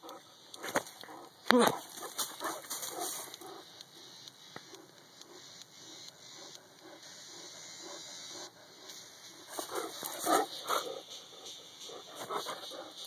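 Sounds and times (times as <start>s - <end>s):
dog breathing and sniffing: 0.0s - 3.7s, 6.3s - 13.0s.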